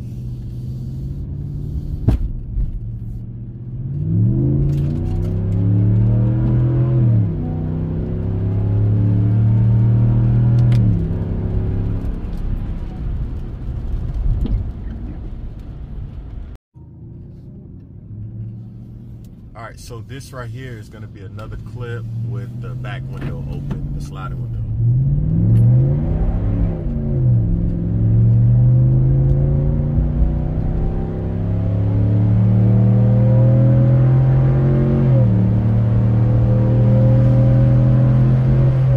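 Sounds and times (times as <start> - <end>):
pickup exhaust drone from cab: 13.9 - 38.9.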